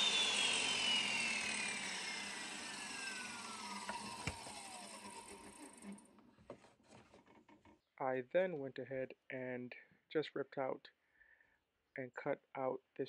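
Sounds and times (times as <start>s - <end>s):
table saw spinning down: 0.0s - 6.1s.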